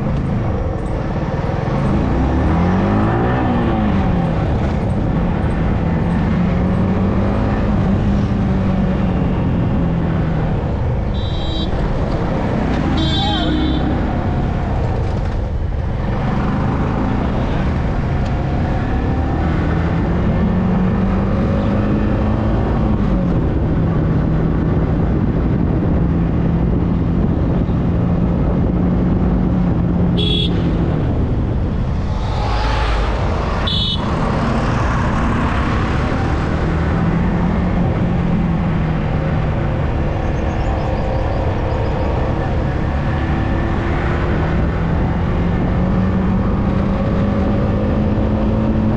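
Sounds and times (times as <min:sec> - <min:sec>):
wind rush: 0:13.9 - 0:48.1
horn beeps: 0:33.6 - 0:34.2.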